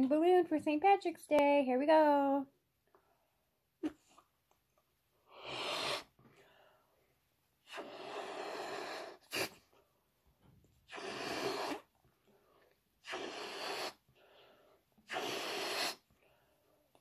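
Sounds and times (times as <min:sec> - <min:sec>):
breath puffs into balloon: 0:05.2 - 0:06.7, 0:07.6 - 0:09.7, 0:10.8 - 0:12.0, 0:13.0 - 0:16.4.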